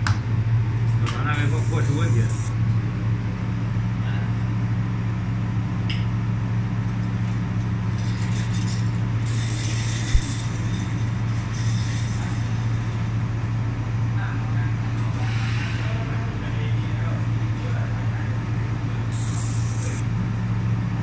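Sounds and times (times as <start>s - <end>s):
welding machine humming: 0.7s - 3.2s, 6.4s - 14.2s, 18.3s - 21.0s
laser welding hiss: 1.3s - 2.5s, 9.2s - 13.1s, 19.1s - 20.1s.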